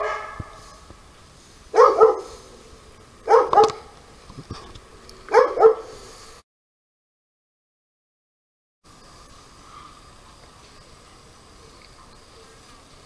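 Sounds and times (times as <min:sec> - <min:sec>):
dog barking: 0:00.0 - 0:00.6, 0:01.7 - 0:02.4, 0:03.2 - 0:03.9, 0:05.3 - 0:06.0.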